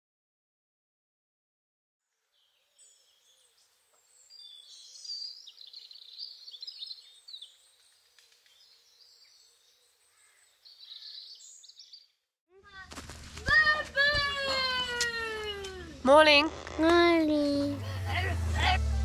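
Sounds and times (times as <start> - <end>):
birds chirping: 2.4 - 12.8.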